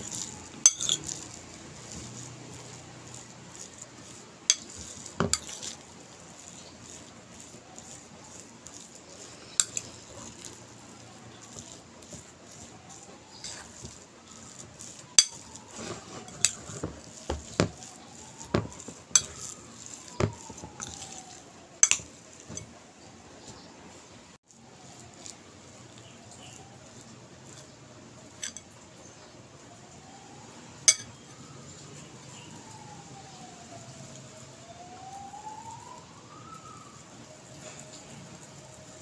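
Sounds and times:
spoon scraping batter in bowl: 0:00.0 - 0:24.1, 0:24.8 - 0:28.8
spoon clinking against bowl: 0:00.1 - 0:01.2, 0:04.5 - 0:05.8.

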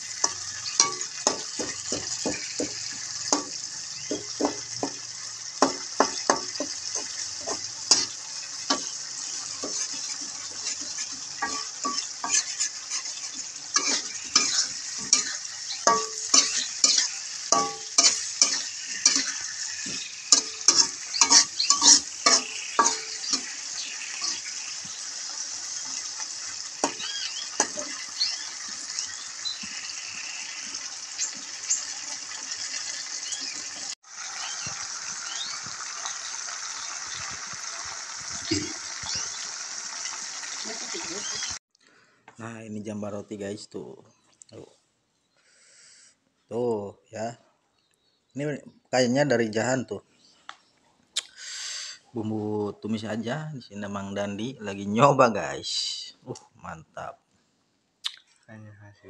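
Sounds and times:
hot oil sizzling: 0:00.0 - 0:41.6
metal spatula scraping a wok: 0:00.1 - 0:04.2, 0:05.6 - 0:26.2, 0:26.8 - 0:28.3.

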